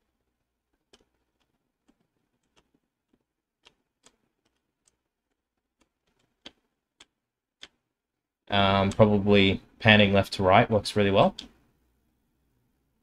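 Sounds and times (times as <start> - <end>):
computer mouse clicks: 0.7 - 7.9.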